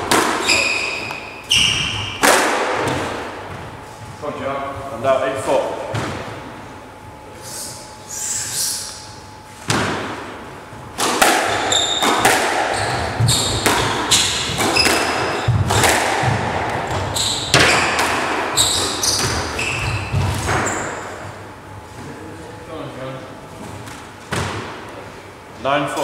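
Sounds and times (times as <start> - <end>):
squash ball hitting rackets: 0.0 - 3.8, 9.6 - 10.3, 10.9 - 21.4, 23.9 - 24.9
shoes squeaking on wooden floor: 0.4 - 2.2, 11.6 - 15.7, 16.9 - 21.2.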